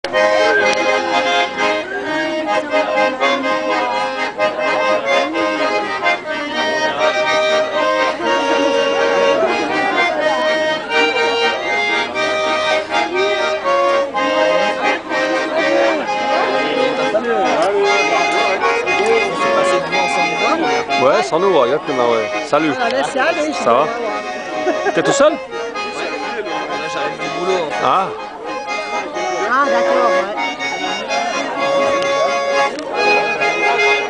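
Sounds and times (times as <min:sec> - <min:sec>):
button accordions playing folk tune: 0:00.0 - 0:34.0.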